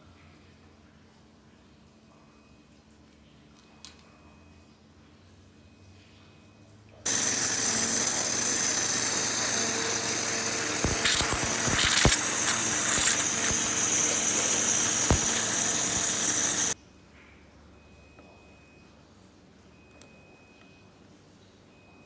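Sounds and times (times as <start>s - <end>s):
waterjet cutter hissing: 7.1s - 16.8s.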